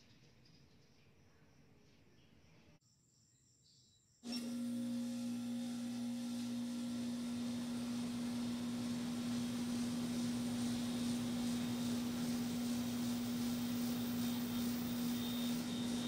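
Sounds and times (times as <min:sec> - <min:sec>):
air conditioner compressor hum: 0:04.4 - 0:16.0.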